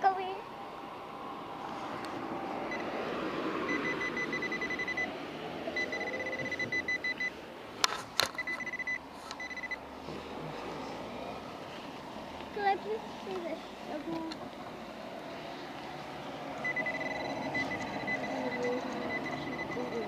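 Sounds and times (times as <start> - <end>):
high-pitched fast beeping: 3.7 - 5.1, 5.8 - 7.4, 8.4 - 9.8, 16.6 - 20.0.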